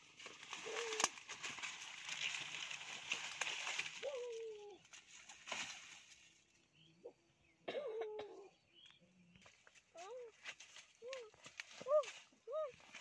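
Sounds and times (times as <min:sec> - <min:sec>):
branch cracking: 0:00.0 - 0:06.3, 0:10.4 - 0:13.0
leaves and branches rustling: 0:00.0 - 0:06.7, 0:09.4 - 0:13.0.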